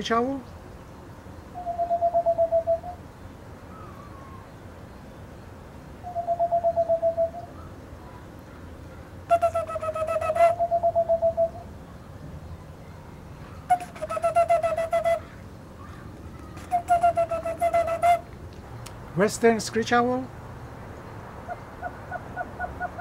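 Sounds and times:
owl trills: 0:01.5 - 0:03.0, 0:06.0 - 0:07.7, 0:09.3 - 0:11.7, 0:21.5 - 0:23.0
ceramic owl whistle hoots: 0:01.6 - 0:03.0, 0:06.0 - 0:07.5, 0:09.3 - 0:11.7, 0:13.7 - 0:15.2, 0:16.6 - 0:18.2.

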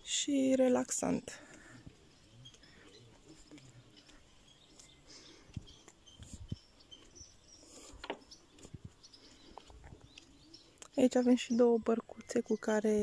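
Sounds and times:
birds chirping: 0:00.0 - 0:13.0
footsteps on wooden decking: 0:01.2 - 0:10.8.

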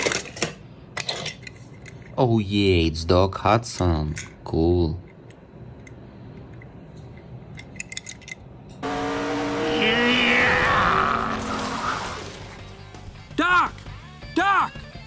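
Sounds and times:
car engine starting and running: 0:08.8 - 0:13.0
tyre skid squealing: 0:08.9 - 0:12.6.

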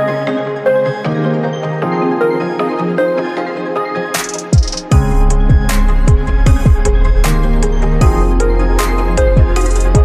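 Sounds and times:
electronic music: 0:00.0 - 0:10.0
deep kick drum beat: 0:04.6 - 0:07.4, 0:08.0 - 0:08.4
sustained bass line: 0:05.0 - 0:10.0.

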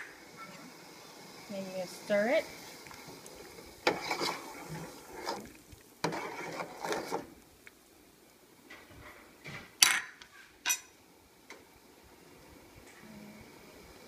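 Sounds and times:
ladle stirring soup in metal pot: 0:02.6 - 0:07.8.

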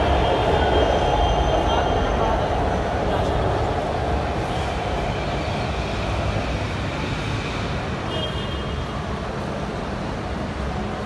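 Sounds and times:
metro train rumble: 0:00.0 - 0:08.2.

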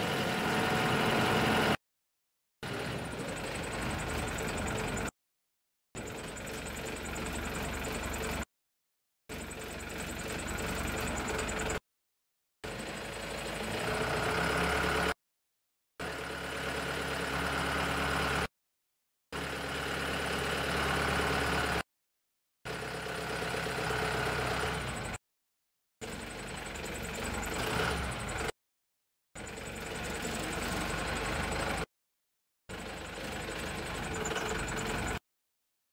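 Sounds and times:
diesel truck engine humming: 0:02.7 - 0:05.1, 0:06.0 - 0:08.4, 0:29.4 - 0:31.9, 0:32.7 - 0:35.2.

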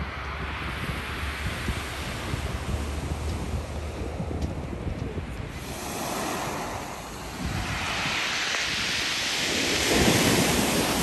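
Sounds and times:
wind rumbling on microphone: 0:00.0 - 0:11.0
surf breaking on pebble beach: 0:05.5 - 0:11.0.

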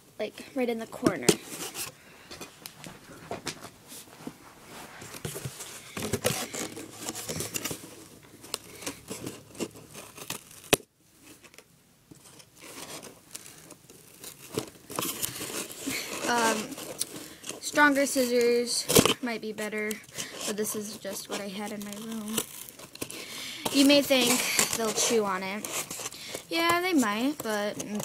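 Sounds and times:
cardboard scraping and crinkling: 0:01.0 - 0:11.6, 0:12.2 - 0:28.0
scissors snipping cardboard: 0:21.6 - 0:28.0.

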